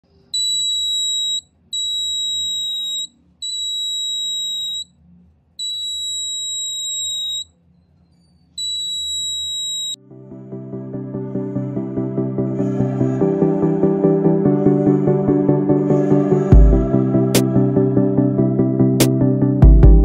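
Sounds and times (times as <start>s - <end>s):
high-pitched buzzer beeps: 0.4s - 4.9s, 5.6s - 7.5s, 8.6s - 10.0s.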